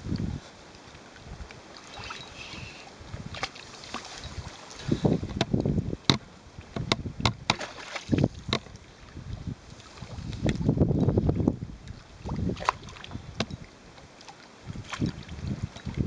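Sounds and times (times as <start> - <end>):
fish thrashing and splashing: 1.8 - 5.4.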